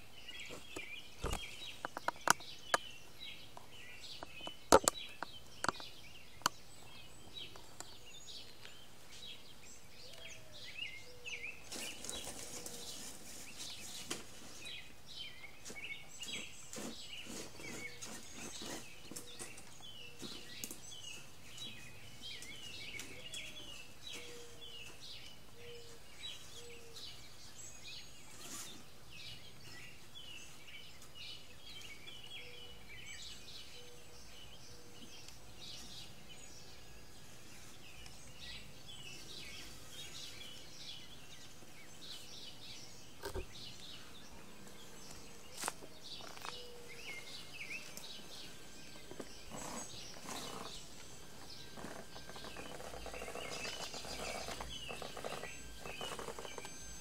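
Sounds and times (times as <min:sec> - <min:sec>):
birds chirping: 0:00.0 - 0:57.0.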